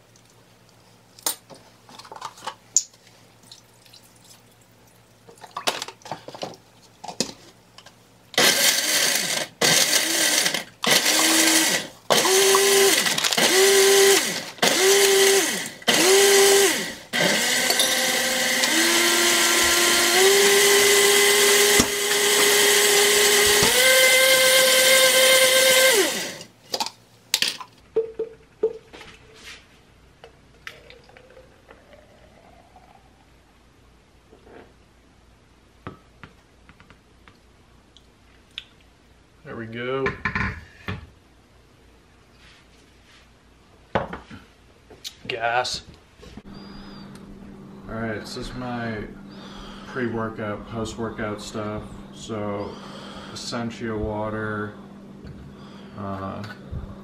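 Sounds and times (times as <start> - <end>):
blender crushing ice: 8.4 - 26.5.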